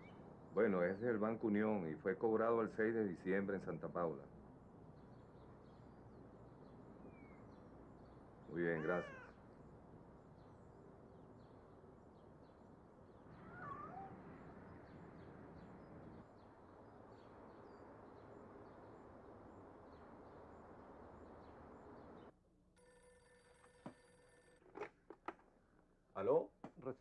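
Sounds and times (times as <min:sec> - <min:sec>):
cat meowing faintly: 0:08.6 - 0:09.4, 0:13.3 - 0:14.4
steady low hiss: 0:14.1 - 0:22.3.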